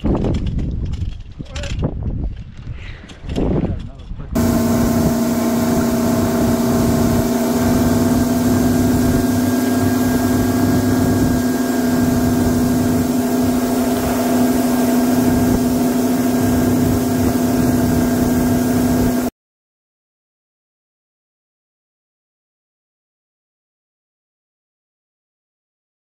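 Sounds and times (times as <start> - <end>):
outboard motor running: 4.4 - 19.3
water rushing past boat: 4.4 - 19.3
wind rushing: 4.4 - 19.3.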